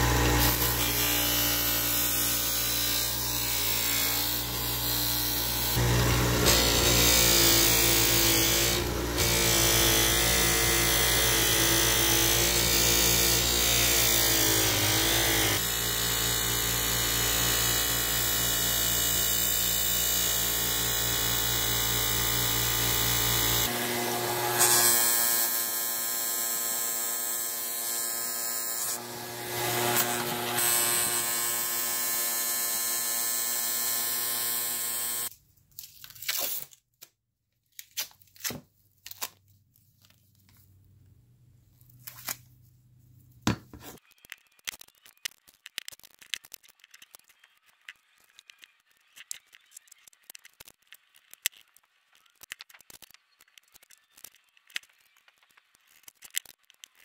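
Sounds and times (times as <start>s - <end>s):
bench grinder polishing metal: 0.0s - 19.1s, 20.8s - 35.3s.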